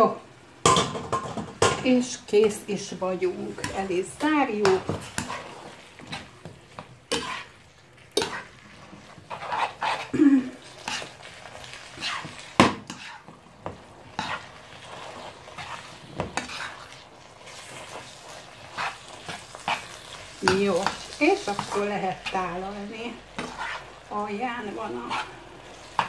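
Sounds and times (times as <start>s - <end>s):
sauce sizzling: 0.0s - 26.0s
tongs scraping and knocking pan: 3.5s - 7.6s, 8.2s - 10.2s, 11.9s - 14.5s, 15.6s - 17.0s, 23.4s - 23.9s.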